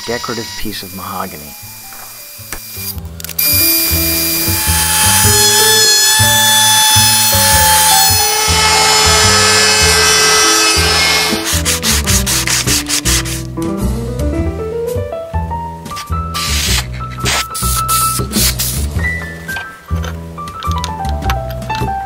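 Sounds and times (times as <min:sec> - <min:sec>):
electric router whining: 0:00.0 - 0:13.5
background music: 0:00.0 - 0:22.0
sanding block rasping on wood: 0:04.5 - 0:13.5, 0:16.0 - 0:18.9.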